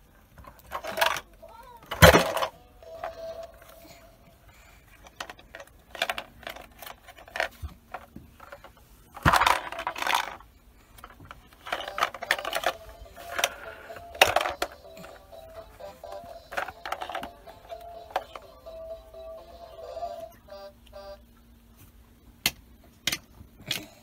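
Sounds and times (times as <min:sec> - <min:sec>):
faint background music: 0:00.0 - 0:24.0
small hard objects clattering: 0:05.1 - 0:18.4.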